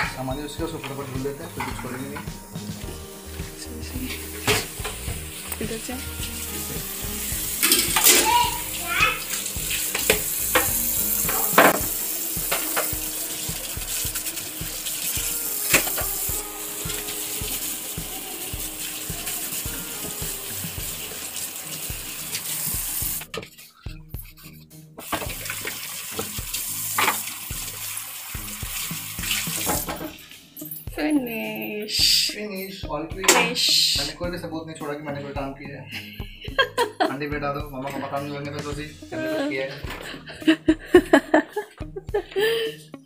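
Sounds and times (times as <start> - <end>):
tap running into sink: 0.0 - 23.3, 25.0 - 30.2
dishes knocking: 0.8 - 2.4, 7.6 - 8.4, 9.9 - 13.0.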